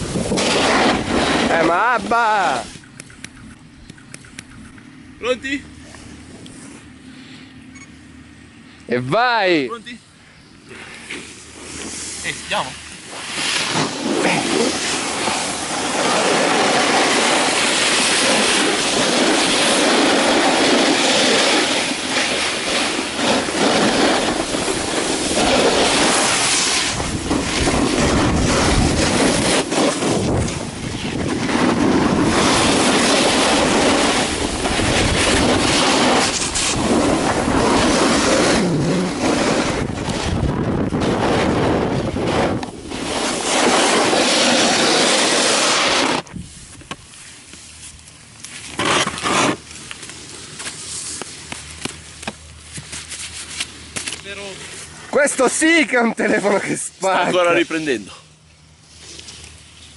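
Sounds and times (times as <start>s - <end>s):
wind on microphone: 0.0s - 1.9s, 13.1s - 46.8s
snowboard scraping on snow: 0.0s - 2.7s, 10.7s - 46.7s, 48.7s - 51.5s.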